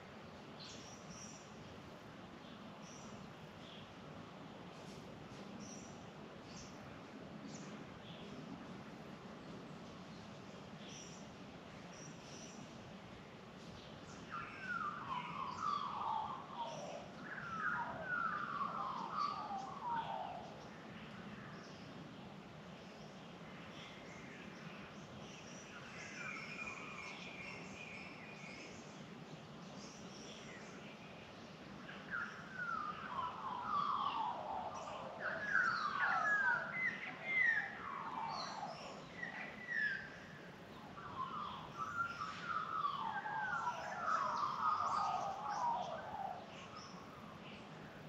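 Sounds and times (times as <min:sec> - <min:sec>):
small birds chirping: 0:00.5 - 0:04.0, 0:13.6 - 0:48.0.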